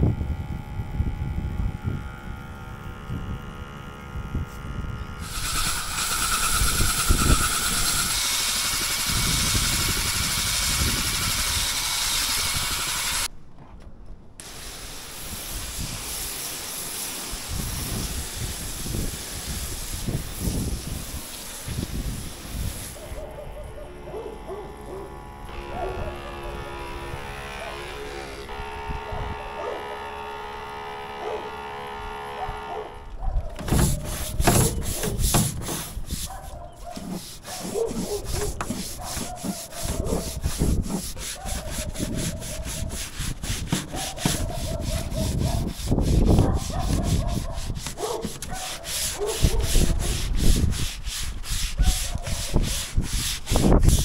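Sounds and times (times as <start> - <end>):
pump sprayer humming: 0.0 - 13.3, 14.4 - 35.9, 36.9 - 50.3
scrub brush scrubbing rubber roof: 5.2 - 13.3, 14.5 - 23.2, 33.6 - 54.0.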